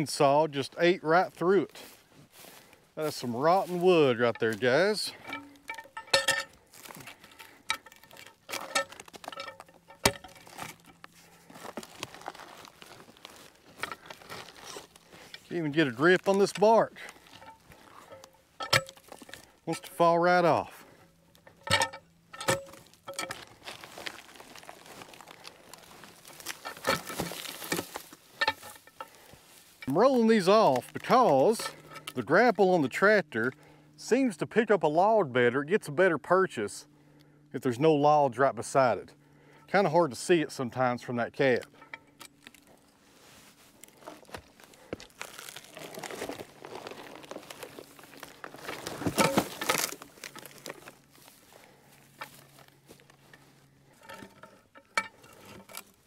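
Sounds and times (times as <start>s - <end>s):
bark crackling and crunching: 1.4s - 33.8s, 41.4s - 56.0s
log rolling knocks: 21.4s - 29.2s, 44.2s - 51.0s.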